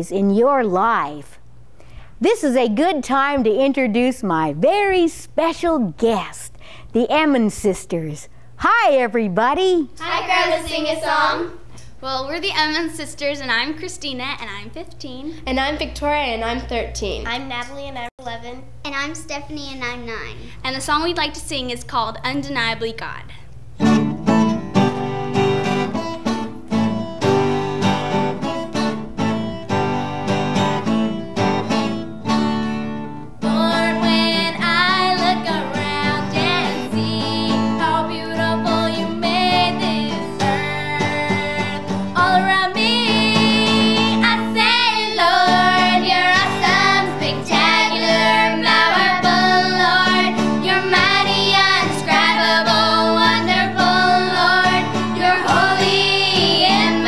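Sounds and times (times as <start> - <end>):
girls singing together: 10.0 - 11.6, 33.4 - 57.0
acoustic guitar strumming: 10.0 - 11.7, 23.7 - 57.0.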